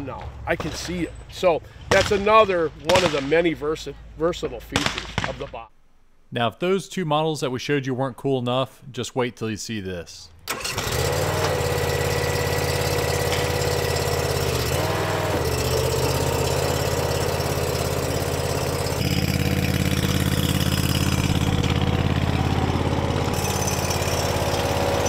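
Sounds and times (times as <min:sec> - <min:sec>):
engine idling: 0:10.4 - 0:25.0.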